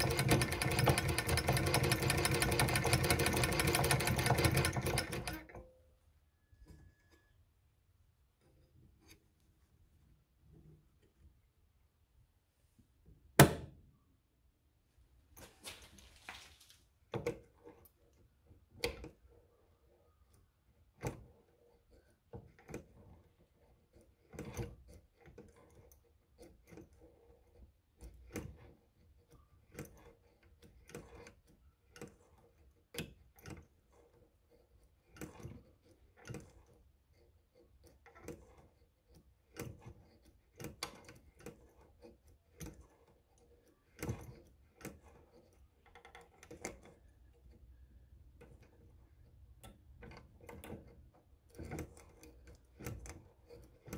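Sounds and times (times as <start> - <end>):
sewing machine stitching: 0.0 - 5.8, 17.1 - 53.9.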